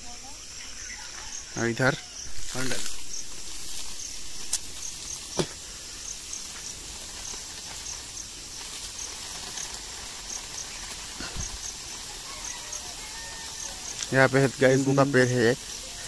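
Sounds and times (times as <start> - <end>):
insect chirping high-pitched: 0.0 - 16.0
steady hiss: 0.0 - 16.0.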